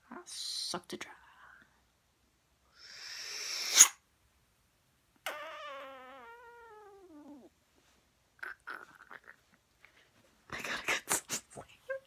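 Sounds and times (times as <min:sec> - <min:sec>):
loud nose sniff: 0:02.8 - 0:04.0.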